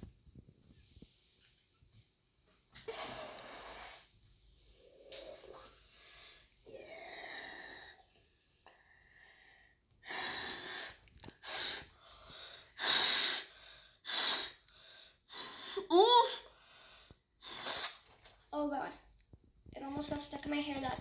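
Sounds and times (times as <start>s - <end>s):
blowing through straw into slime: 10.0s - 12.0s, 12.7s - 14.6s, 17.4s - 18.3s.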